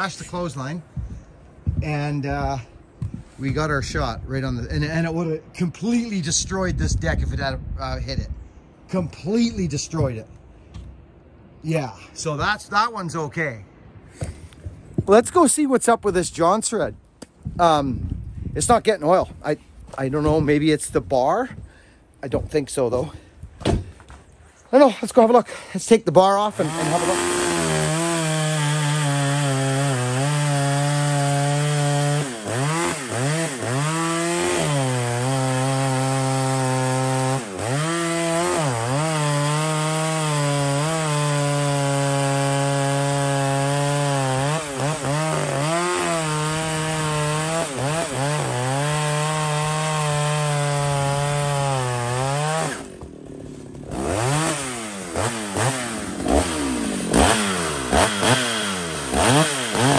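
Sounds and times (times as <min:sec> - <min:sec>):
chainsaw cutting through log: 0:26.4 - 0:59.9.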